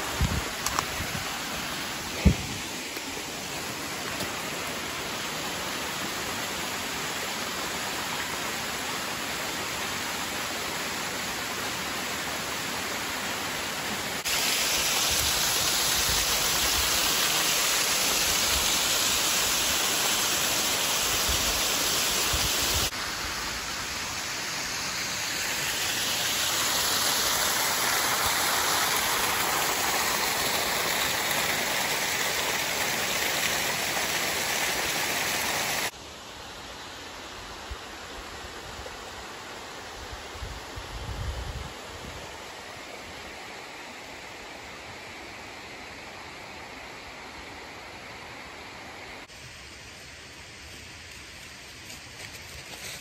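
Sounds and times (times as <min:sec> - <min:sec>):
creek water rushing over rocks: 0:00.0 - 0:36.0.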